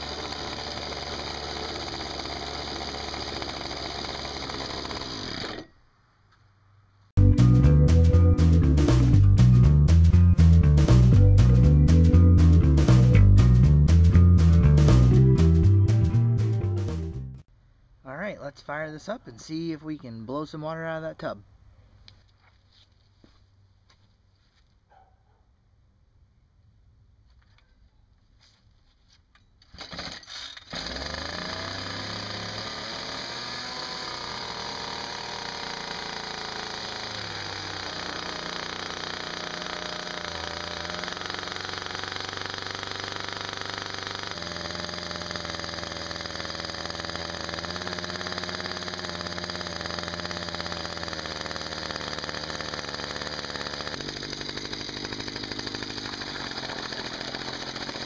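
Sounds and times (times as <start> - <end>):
small two-stroke engine running: 0.0 - 5.7, 29.8 - 58.0.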